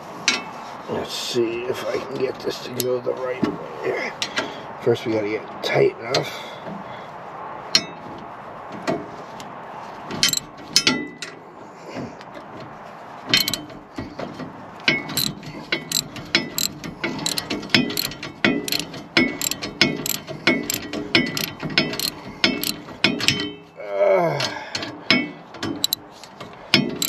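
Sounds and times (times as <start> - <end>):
ratchet wrench clicking: 10.2 - 10.4, 13.4 - 13.6, 16.6 - 18.1, 18.7 - 22.8.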